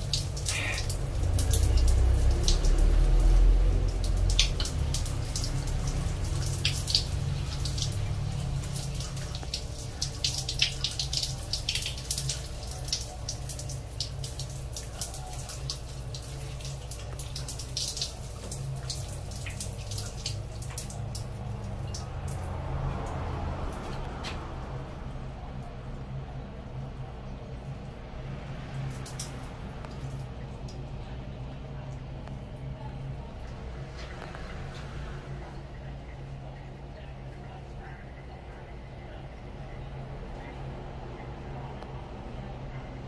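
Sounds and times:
shower water splashing: 0.0 - 25.8, 26.9 - 39.2
water dripping: 0.0 - 43.0.

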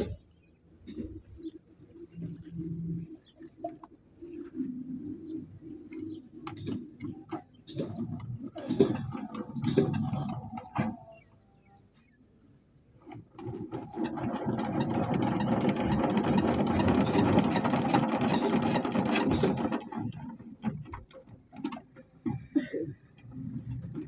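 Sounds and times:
diesel engine hand-cranked: 6.4 - 11.4, 13.0 - 24.0.

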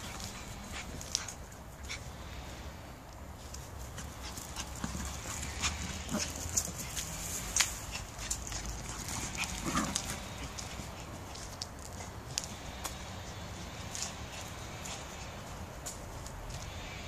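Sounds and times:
dog paws clicking and pattering: 0.0 - 2.0, 3.4 - 13.0.

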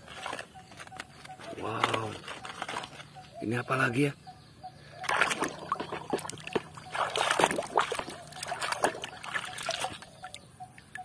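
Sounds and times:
water splashing in plastic basin: 5.0 - 10.4.

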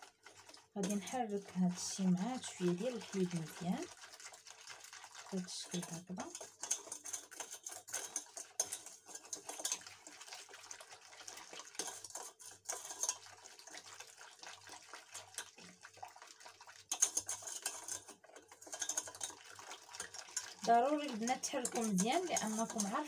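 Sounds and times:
whisk scraping in a metal pot: 0.0 - 23.0.

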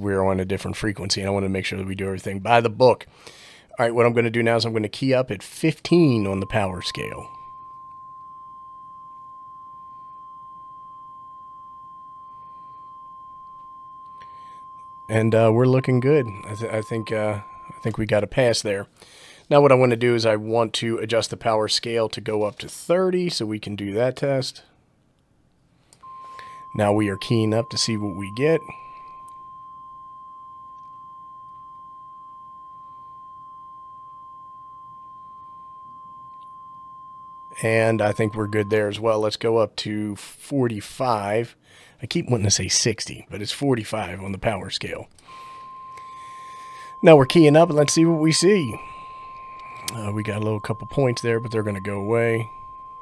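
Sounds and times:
steady pure radio tone: 5.9 - 7.6, 11.8 - 18.7, 26.0 - 29.2, 36.5 - 39.1, 45.3 - 53.0.

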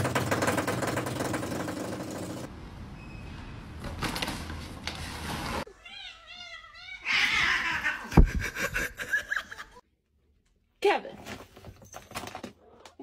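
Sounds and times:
cat yowling: 5.7 - 8.2.

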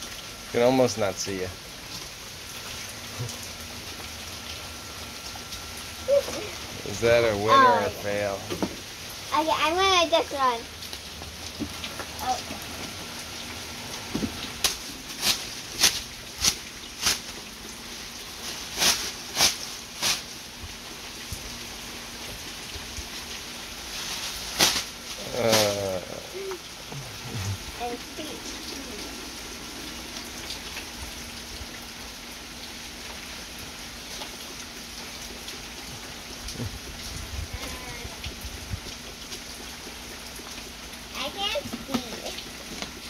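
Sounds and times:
rain hissing: 0.0 - 43.0
plastic bag rustling: 23.8 - 25.2.

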